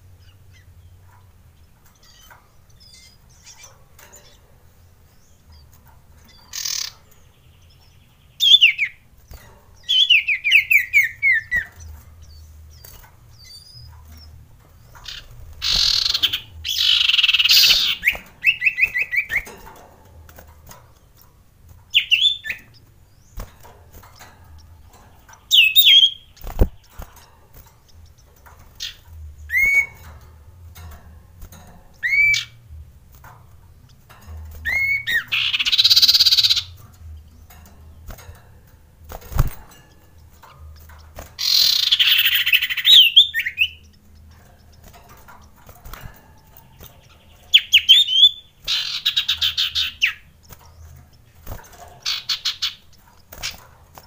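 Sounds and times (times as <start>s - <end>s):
bird trill: 0.0s - 21.2s, 21.8s - 54.0s
bird harsh rasping chatters: 6.3s - 7.1s, 15.0s - 19.5s, 40.3s - 46.0s, 47.0s - 50.6s, 51.4s - 53.6s.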